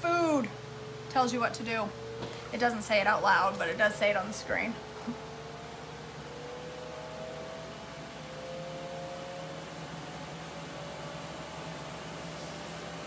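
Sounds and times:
faint rising tone: 0:00.0 - 0:13.0
grill fan whirring: 0:00.0 - 0:13.0.

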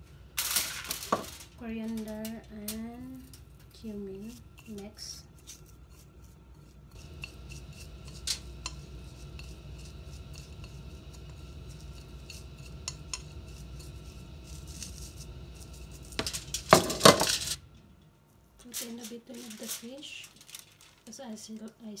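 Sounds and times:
low hum: 0:00.0 - 0:18.6
fingers mixing spices on plate: 0:02.0 - 0:17.2
clatter of metal and crockery: 0:16.2 - 0:17.6.

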